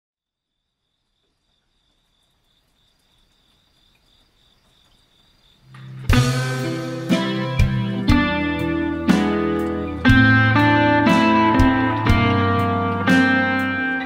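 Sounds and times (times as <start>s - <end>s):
cricket chirping: 0.2s - 7.7s
band music with drums guitar bass: 5.8s - 14.0s.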